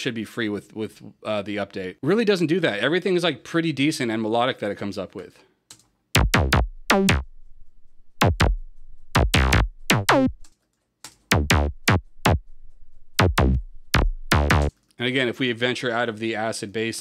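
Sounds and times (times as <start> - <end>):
staccato synth bass notes: 6.2 - 7.5, 8.2 - 10.4, 11.3 - 14.7.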